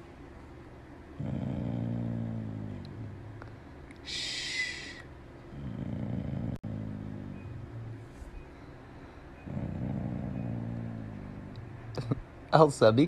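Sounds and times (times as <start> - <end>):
dog groaning: 1.2 - 3.6, 5.5 - 8.2, 9.4 - 12.2.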